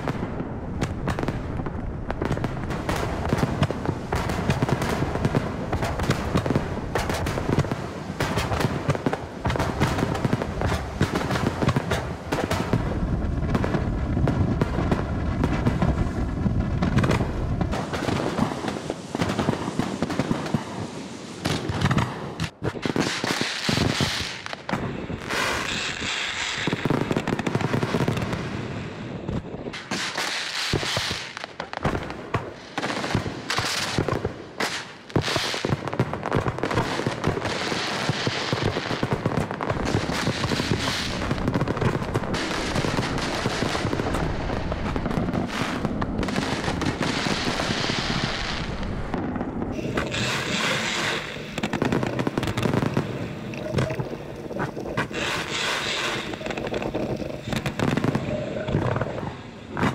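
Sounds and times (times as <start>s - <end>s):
fireworks shells bursting: 45.4s - 59.9s.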